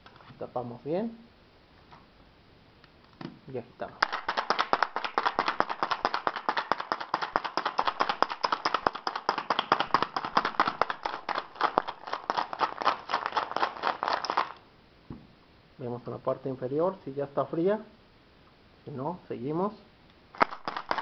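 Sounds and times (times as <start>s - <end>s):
ice rattling in cocktail shaker: 5.2s - 14.6s, 20.4s - 21.0s.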